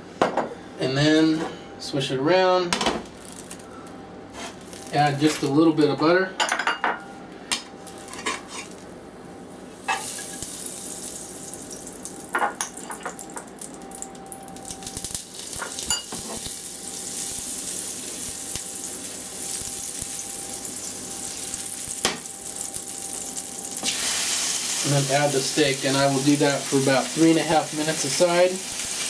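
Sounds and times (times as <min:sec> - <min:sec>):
butter sizzling in frying pan: 0:09.9 - 0:12.3, 0:14.6 - 0:29.0.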